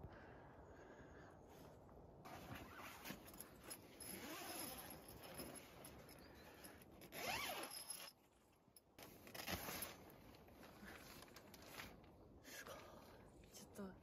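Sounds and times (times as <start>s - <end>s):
tent fabric rustling: 2.2s - 6.0s, 9.0s - 12.0s.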